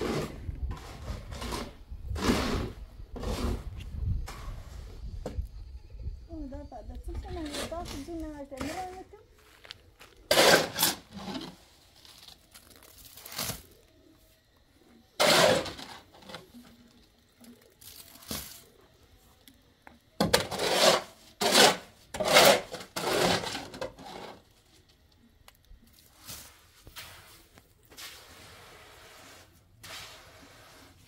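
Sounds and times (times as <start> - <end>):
shovel scraping wet concrete: 0.0 - 4.8, 7.3 - 9.0, 10.2 - 11.8, 15.2 - 16.6, 20.2 - 24.4, 26.1 - 31.0.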